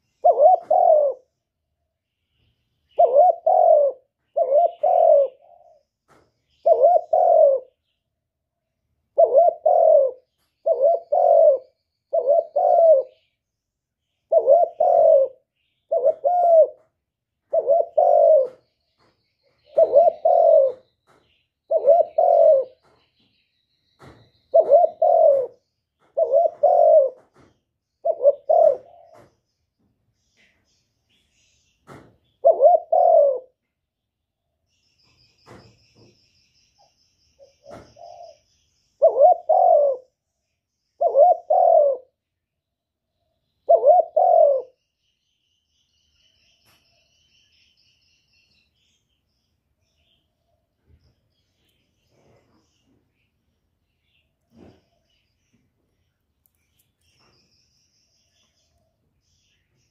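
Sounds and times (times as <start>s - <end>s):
dove cooing: 0.0s - 1.3s, 2.9s - 5.8s, 6.5s - 7.8s, 9.1s - 13.3s, 14.3s - 18.7s, 19.6s - 20.9s, 21.7s - 22.9s, 24.0s - 29.3s, 32.4s - 33.6s, 37.4s - 40.2s, 41.0s - 42.2s, 43.6s - 44.8s.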